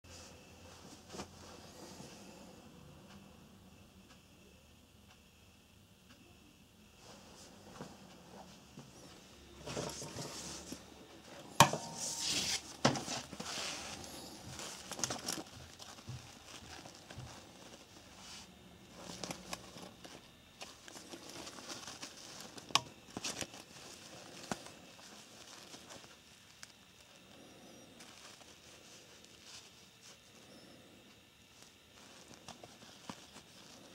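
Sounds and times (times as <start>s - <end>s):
fabric strap rustling: 9.0s - 27.0s, 31.5s - 33.9s.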